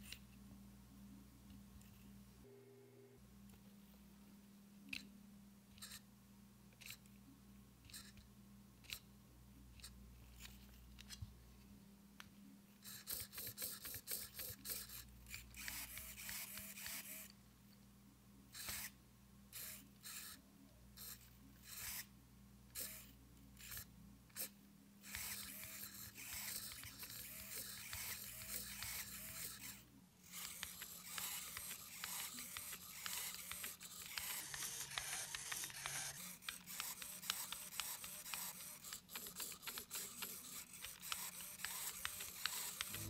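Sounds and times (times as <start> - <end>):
faint steady hum: 0.0 - 43.0
servos whirring in short bursts: 25.1 - 38.6, 39.4 - 43.0.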